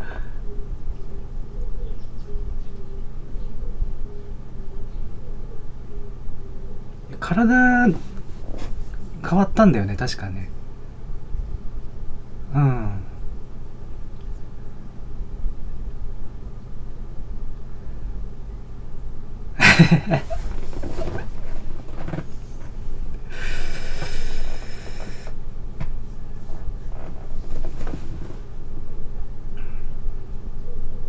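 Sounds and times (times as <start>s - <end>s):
person laughing under breath: 0.0s - 0.4s, 19.6s - 21.6s, 23.2s - 25.3s
steady low hum: 0.0s - 31.0s
hiss: 23.3s - 25.4s.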